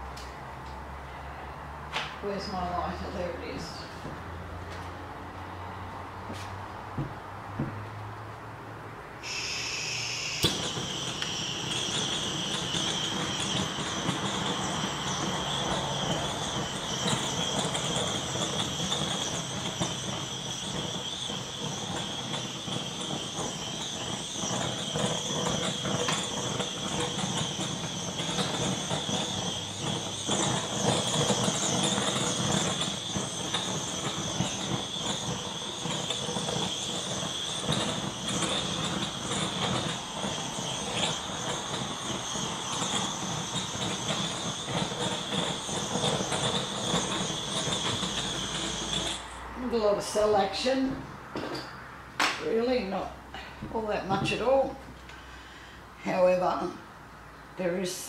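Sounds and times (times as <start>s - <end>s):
gas torch hissing and whistling: 0.0s - 7.8s, 9.2s - 58.0s.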